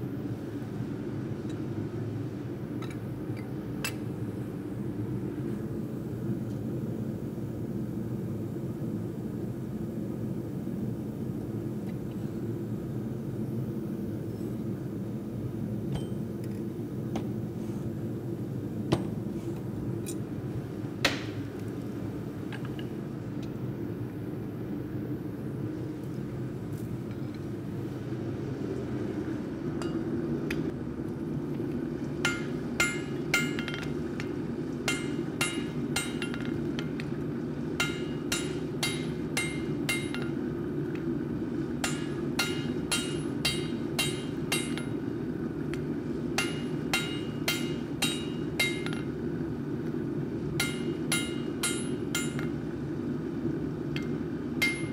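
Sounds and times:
hammer blows ringing on anvil: 32.2s - 34.3s, 34.9s - 36.9s, 37.8s - 40.4s, 41.8s - 45.0s, 46.4s - 49.1s, 50.6s - 52.6s, 54.0s - 54.9s.

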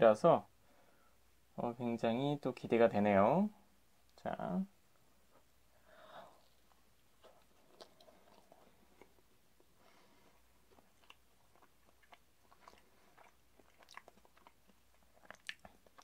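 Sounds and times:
person chewing: 6.2s - 16.0s.

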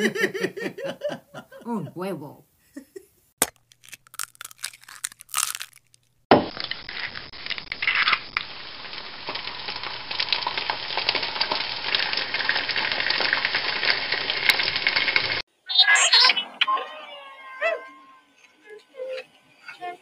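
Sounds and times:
dense crackling and crunching: 3.4s - 13.5s.

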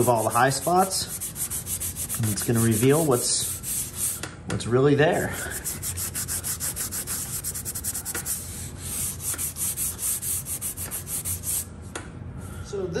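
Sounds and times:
abrasive pad scrubbing metal: 0.0s - 4.2s, 5.5s - 11.6s.

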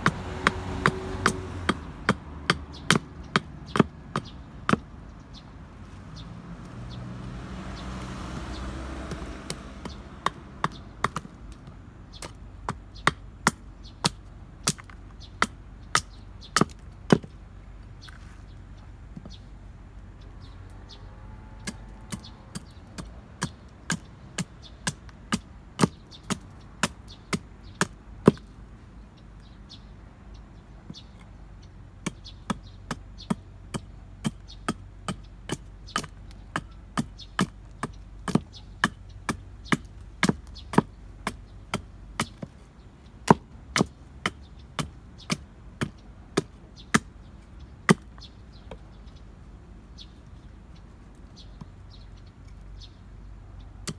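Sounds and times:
hatchet chopping wood: 0.0s - 5.0s, 6.4s - 17.4s, 21.6s - 28.6s, 32.0s - 42.6s, 43.2s - 48.9s.

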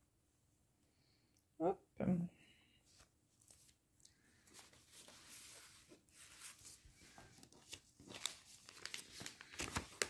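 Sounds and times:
plastic packets crinkling: 7.4s - 10.0s.

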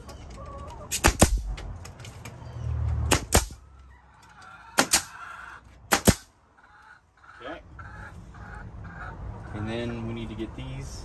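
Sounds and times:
chickens clucking: 0.0s - 1.6s, 3.6s - 10.6s
nail gun firing: 0.9s - 1.5s, 3.1s - 3.6s, 4.8s - 5.1s, 5.9s - 6.3s.

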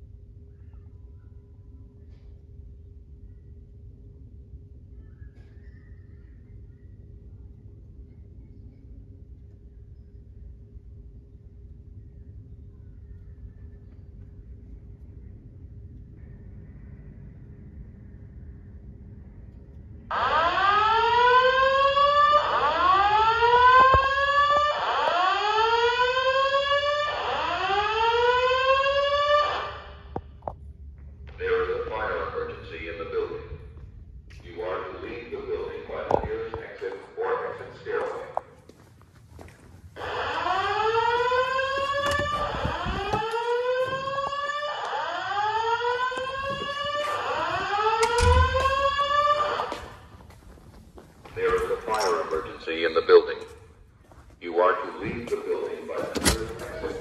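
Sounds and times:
rising whoop alarm tone: 20.1s - 30.2s, 40.0s - 50.0s.

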